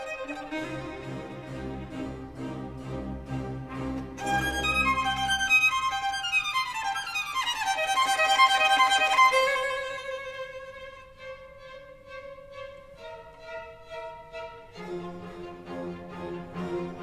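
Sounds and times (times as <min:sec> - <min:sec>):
background music: 0:00.0 - 0:05.6.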